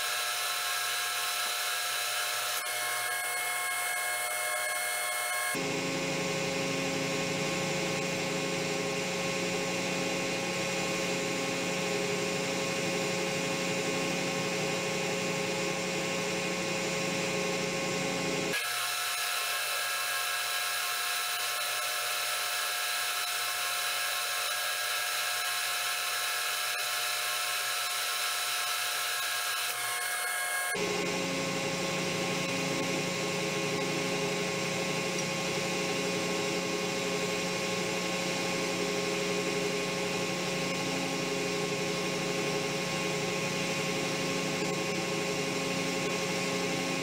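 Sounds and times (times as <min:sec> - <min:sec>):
metal lathe running: 0:00.0 - 0:05.6, 0:18.5 - 0:36.5.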